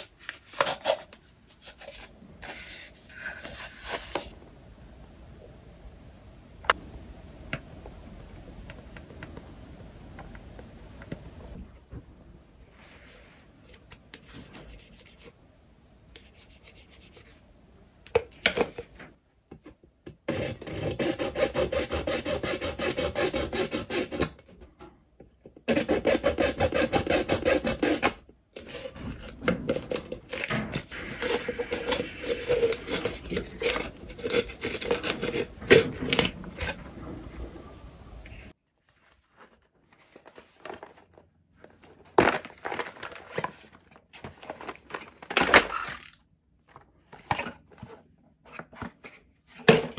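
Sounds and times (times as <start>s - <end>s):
hacksaw sawing plastic: 20.3s - 24.4s, 25.7s - 29.4s, 30.3s - 36.3s
pencil scratching plastic: 30.3s - 36.7s.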